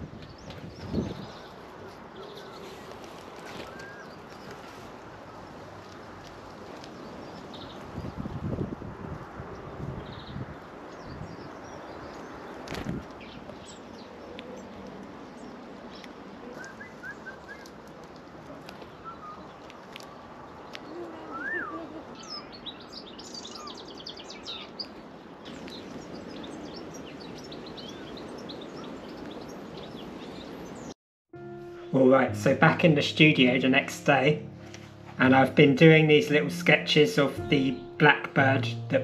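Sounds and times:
steady outdoor hiss: 0.0 - 9.8, 10.5 - 39.0
songbirds chirping and trilling: 0.2 - 8.3, 9.5 - 31.0
rising and falling bird call: 20.8 - 24.7.

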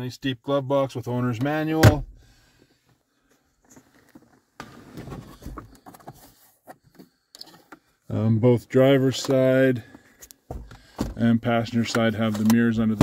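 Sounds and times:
faint rustling and handling: 2.8 - 7.9.

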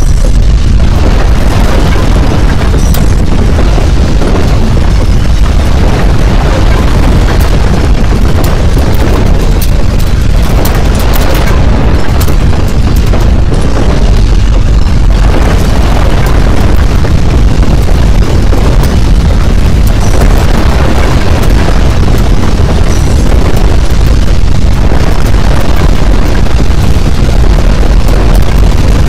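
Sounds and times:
deep rumble with crackling: 0.0 - 29.0.

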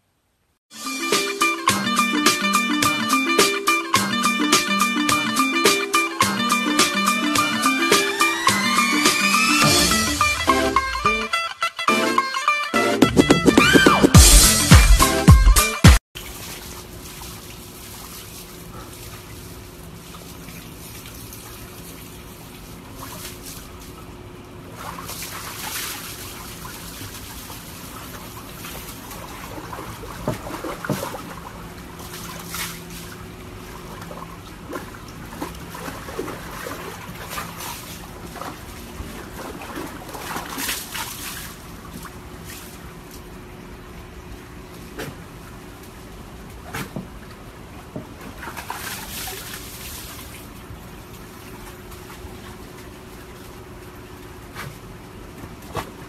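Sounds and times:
water sloshing in a plastic tub: 16.2 - 56.0.

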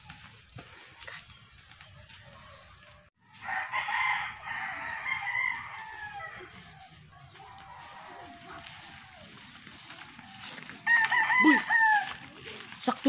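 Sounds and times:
rooster crowing: 3.3 - 9.6, 10.4 - 12.4.

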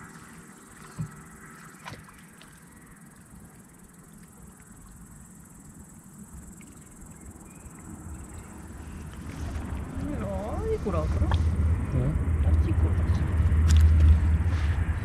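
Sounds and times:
crickets chirring: 0.0 - 15.0
low rumble: 8.0 - 15.0.

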